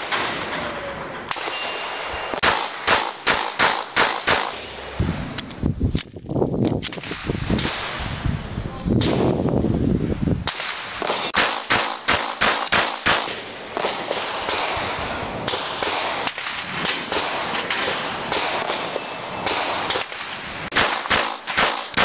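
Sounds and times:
rapid pistol shots: 2.4s - 4.6s, 10.5s - 14.8s, 15.5s - 22.0s.

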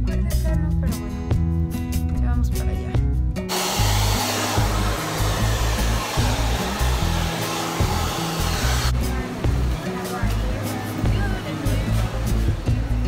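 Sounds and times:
hair dryer blowing: 3.5s - 10.2s.

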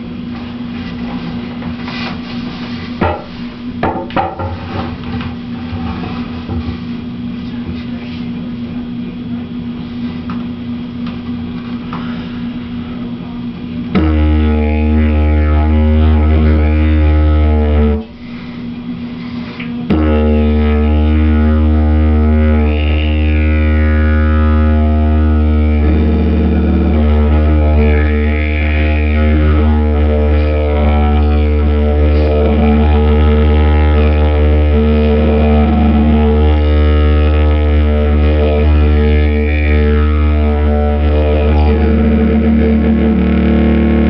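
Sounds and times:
didgeridoo drone: 0.0s - 44.0s
quiet steady hum: 0.0s - 44.0s
knocks: 3.0s - 4.9s.

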